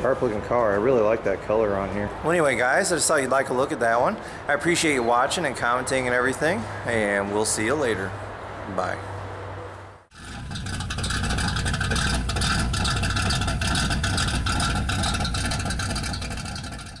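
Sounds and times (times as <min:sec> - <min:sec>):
engine running with rough pulse: 0:10.1 - 0:17.0.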